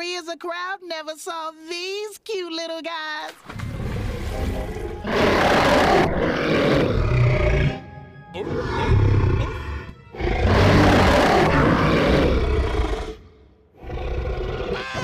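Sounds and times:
cartoon soundtrack music: 3.7s - 11.8s, 14.7s - 15.0s
large creature roaring: 5.0s - 7.8s, 8.4s - 15.0s.

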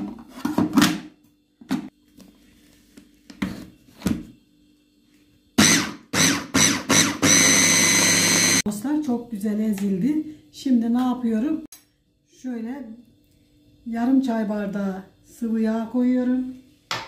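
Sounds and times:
food processor motor whining: 5.6s - 8.7s.

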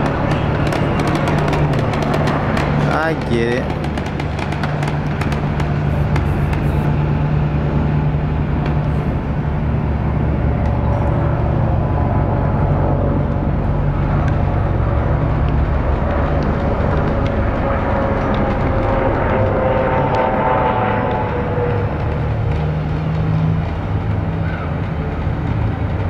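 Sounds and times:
bus engine droning: 0.0s - 26.0s.

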